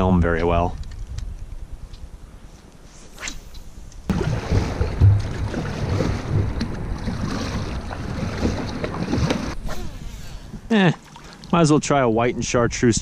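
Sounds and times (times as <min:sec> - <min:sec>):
paddle splashing water: 0:04.1 - 0:09.6, 0:10.8 - 0:11.6
wind buffeting microphone: 0:04.1 - 0:10.8.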